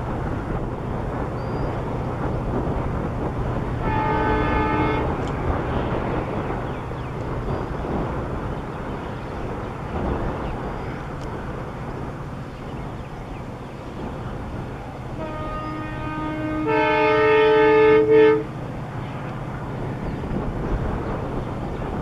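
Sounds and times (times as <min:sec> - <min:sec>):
train rumbling: 0:00.0 - 0:22.0
locomotive horn: 0:03.7 - 0:05.7, 0:15.1 - 0:18.6.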